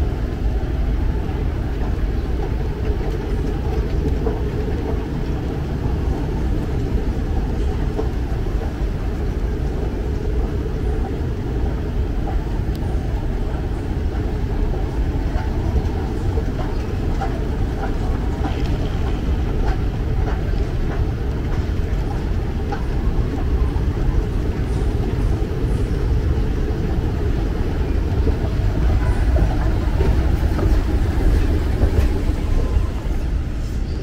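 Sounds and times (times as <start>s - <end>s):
moving walkway rumbling: 0.0s - 34.0s.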